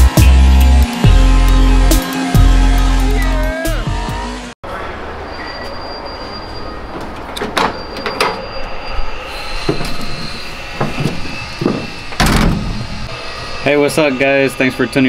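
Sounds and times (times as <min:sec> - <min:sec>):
garage background noise: 0:04.6 - 0:15.0.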